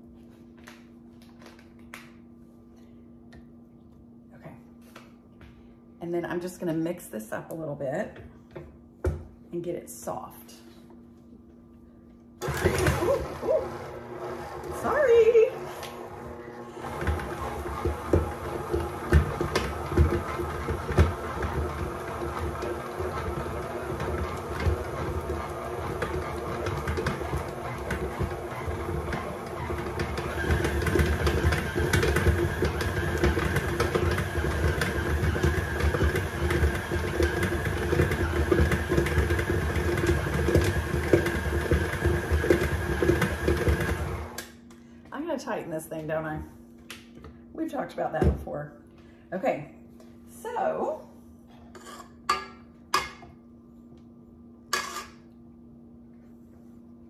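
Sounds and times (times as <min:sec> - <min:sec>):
high mixer whine: 0:12.4 - 0:44.4
mixer beater knocking: 0:12.4 - 0:44.4
stand mixer motor hum: 0:12.4 - 0:44.4.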